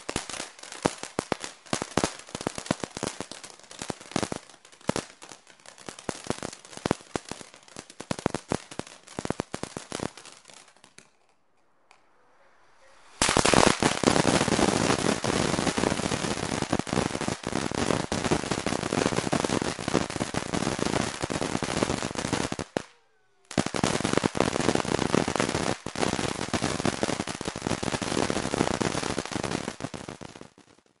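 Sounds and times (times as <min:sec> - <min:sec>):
fountain fireworks crackling: 0:00.0 - 0:31.0.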